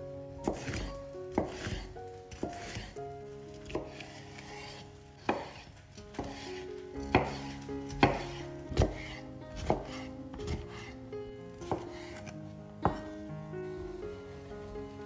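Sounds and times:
background music: 0.0 - 15.0
knife chopping on cutting board: 0.4 - 3.0, 3.6 - 10.9, 11.7 - 13.2.

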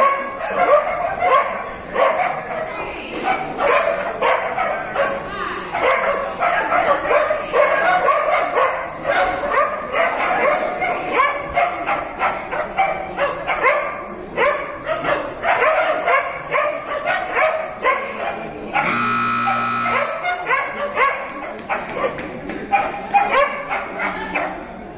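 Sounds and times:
dog barking: 0.0 - 24.6
electric buzzer: 18.8 - 20.2.

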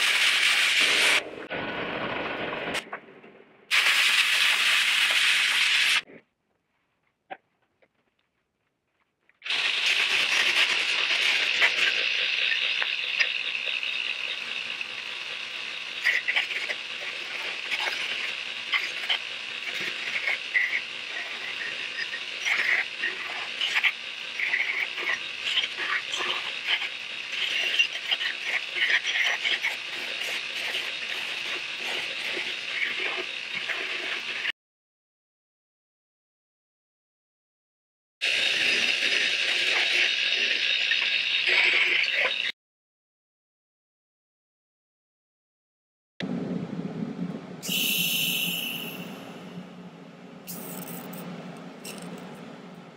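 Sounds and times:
belt grinder grinding steel: 9.4 - 34.5, 38.2 - 42.5, 50.5 - 52.4.

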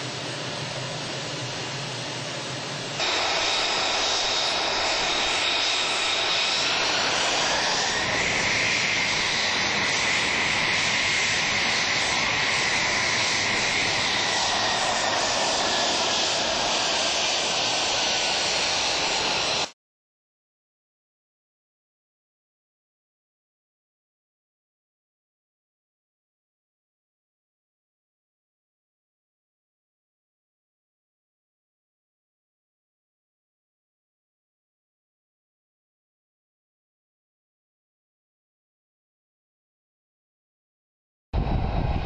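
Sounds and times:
jet engine running with whine: 0.0 - 19.8, 41.4 - 42.0.

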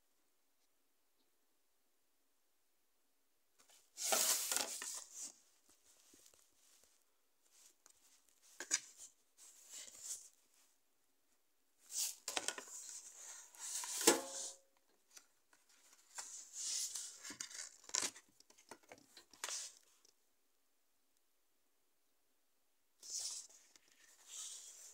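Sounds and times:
plastic and cardboard rustling: 3.6 - 10.6, 11.9 - 20.0.

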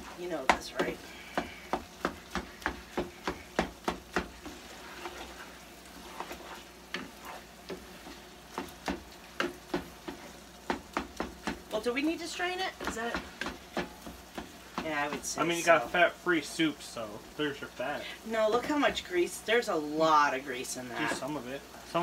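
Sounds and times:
meat sizzling in a skillet: 0.0 - 22.0
utensil knocking against a pan: 0.4 - 4.5, 8.5 - 11.7, 12.7 - 15.4.

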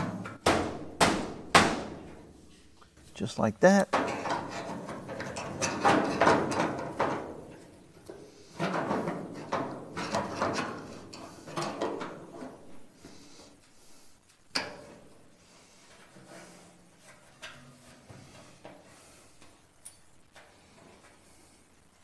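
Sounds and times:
steel panel scraping and creaking: 4.0 - 13.2.

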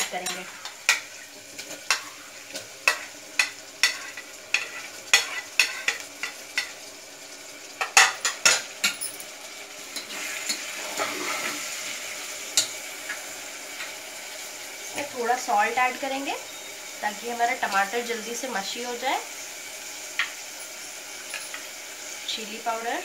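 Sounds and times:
oil sizzling: 0.0 - 23.0
metal spatula scraping a pot: 0.1 - 6.7, 10.0 - 11.6.

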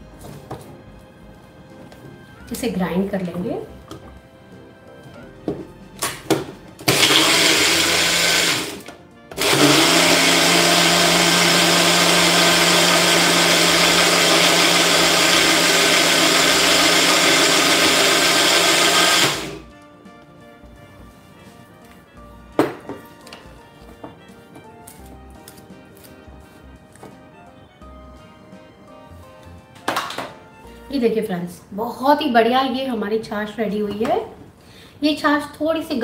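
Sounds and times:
blender motor running: 6.8 - 19.7.

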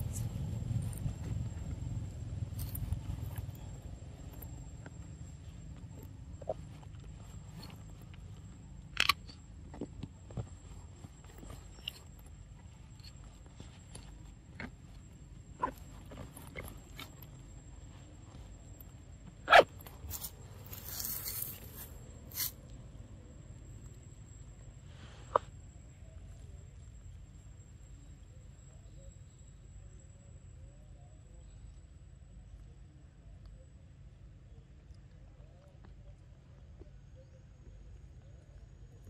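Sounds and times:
outdoor background noise: 0.0 - 39.0
dry rustling: 10.2 - 22.6.

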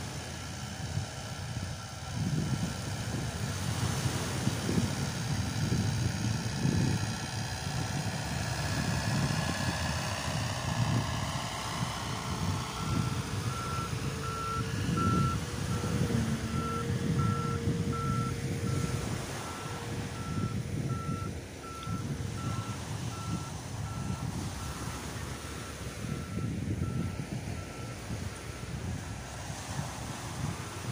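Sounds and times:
wind: 0.0 - 30.9
reversing alarm beeping: 12.1 - 24.8, 25.6 - 28.1.

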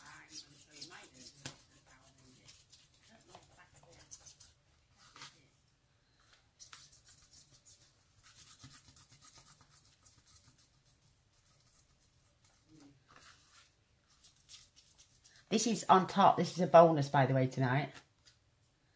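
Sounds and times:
eraser rubbing on paper: 0.0 - 4.6, 6.6 - 12.6.

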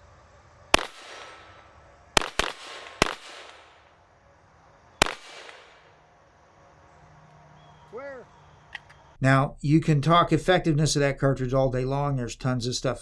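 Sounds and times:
echoing gunshot tail: 0.7 - 3.9, 5.0 - 6.0
rifle gunshots: 0.7 - 3.9, 5.0 - 6.0.

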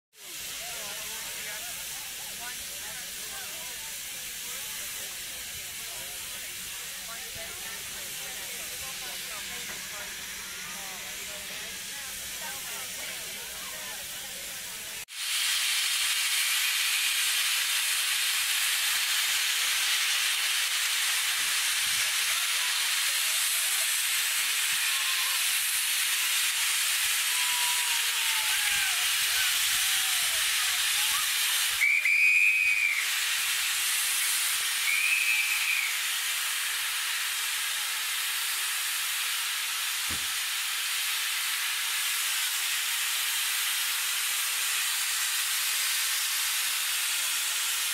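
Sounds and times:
steam locomotive hissing: 0.2 - 47.9
steam whistle blasts: 24.5 - 36.2.

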